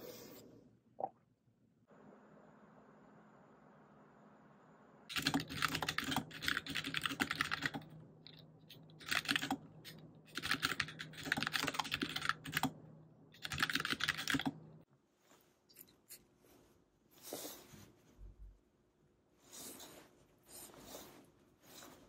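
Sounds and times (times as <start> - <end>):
typing on computer keyboard: 5.1 - 12.8, 13.4 - 14.6.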